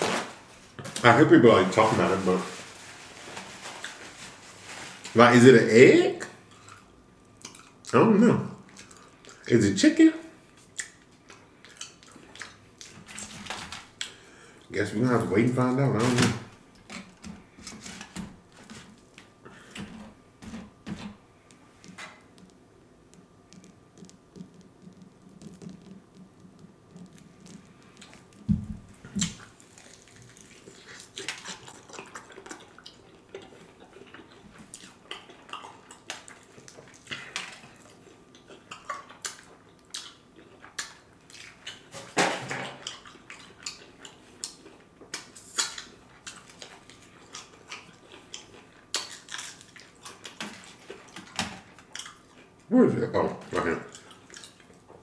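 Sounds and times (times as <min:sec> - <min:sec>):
food handling clicks and rustles: 0:00.0 - 0:05.3, 0:15.8 - 0:52.5
crunching and chewing food: 0:00.0 - 0:09.6, 0:10.4 - 0:15.0, 0:16.7 - 0:55.0.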